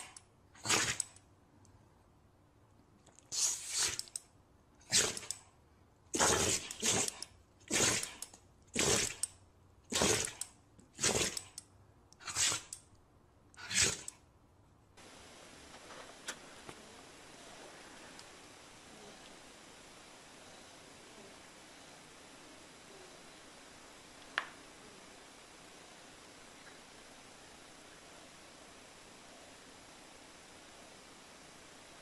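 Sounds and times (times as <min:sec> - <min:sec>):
small dog sneezing: 0:00.0 - 0:01.0, 0:03.3 - 0:04.0, 0:12.2 - 0:12.7
click: 0:03.0 - 0:04.3, 0:05.1 - 0:05.5, 0:10.3 - 0:13.0
faint hiss: 0:03.2 - 0:09.3, 0:15.0 - 0:32.0.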